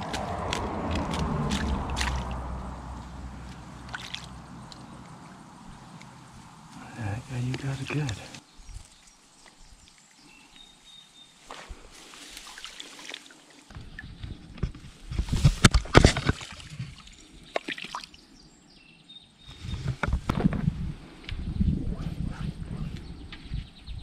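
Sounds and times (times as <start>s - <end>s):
stream water splashing: 0.0s - 10.7s, 11.3s - 14.2s, 15.3s - 18.4s.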